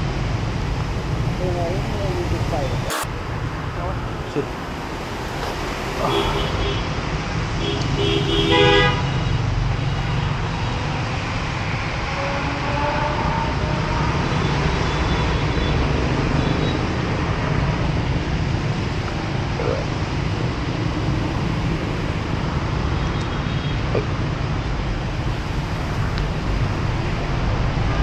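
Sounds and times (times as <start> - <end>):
passing cars on wet street: 0.0 - 28.0
vehicle horn tooting: 2.9 - 3.1, 6.0 - 6.8, 7.6 - 9.2, 12.1 - 15.3.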